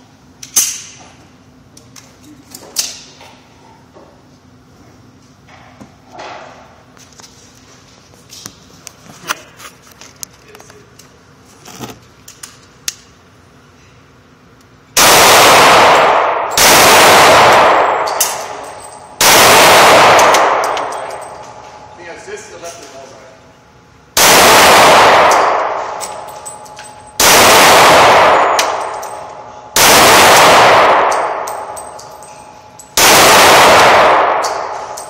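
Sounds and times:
handgun blasts echoing: 15.0s - 21.4s, 24.2s - 26.2s, 27.2s - 31.9s, 33.0s - 35.0s.

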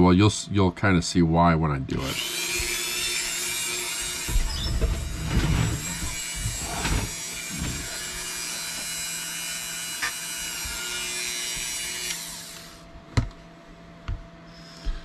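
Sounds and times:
rotary tool whining: 1.9s - 12.9s.

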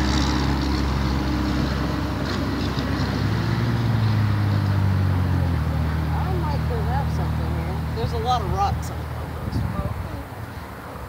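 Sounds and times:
engine running: 0.0s - 11.0s.

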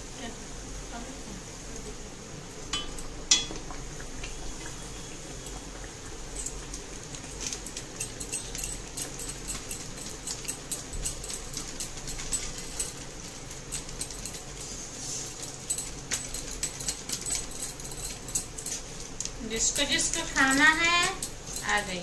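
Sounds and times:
dough deep-frying in hot oil: 0.0s - 22.0s
spitting oil crackles and pops: 2.5s - 17.1s.

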